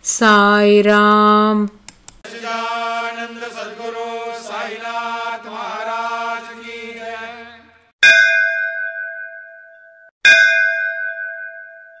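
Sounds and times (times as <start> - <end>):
person chanting: 2.3 - 7.9
bell struck: 8.0 - 12.0.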